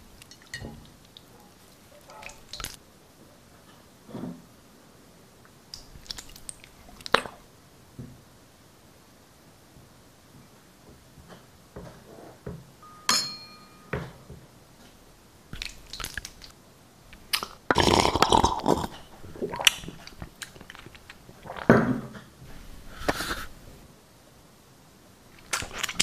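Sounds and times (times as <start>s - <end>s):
slurping and gulping slime: 0.0s - 2.8s, 5.8s - 7.5s, 15.6s - 16.6s, 17.2s - 21.7s, 25.3s - 26.0s
glass ringing: 12.8s - 14.1s.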